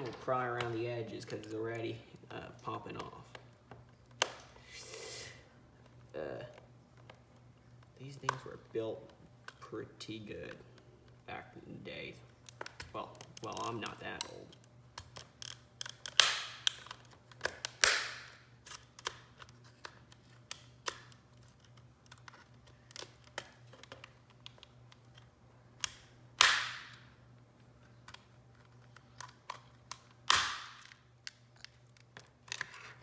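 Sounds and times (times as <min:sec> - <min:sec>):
plastic case snapping apart: 0:15.0 - 0:21.2, 0:25.8 - 0:27.1, 0:29.1 - 0:32.7.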